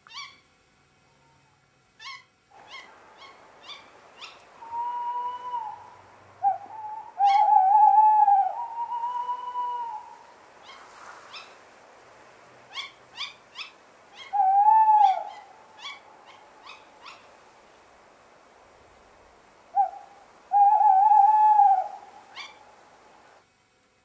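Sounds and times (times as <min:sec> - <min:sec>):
owl calling and hooting: 0:00.0 - 0:00.5, 0:01.1 - 0:11.6, 0:12.7 - 0:17.4, 0:19.7 - 0:22.8.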